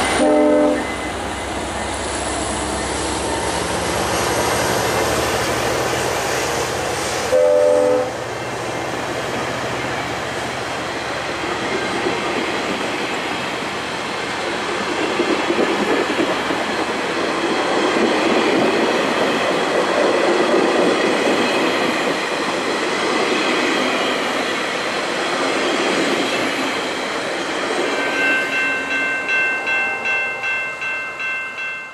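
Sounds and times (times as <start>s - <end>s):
train wheels rumbling on rails: 0.0s - 31.9s
crossing bell ringing: 27.6s - 31.9s.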